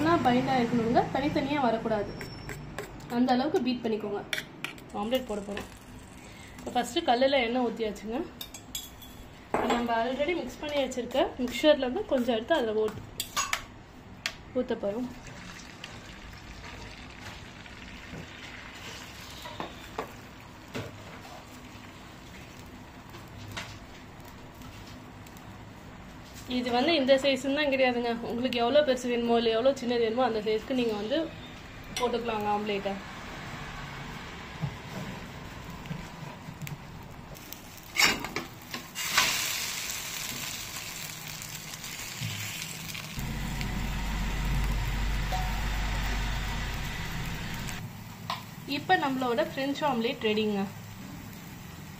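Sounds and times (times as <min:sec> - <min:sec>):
egg mixture sizzling on griddle: 0:15.0 - 0:25.5, 0:36.6 - 0:51.9
low hum: 0:43.2 - 0:47.8.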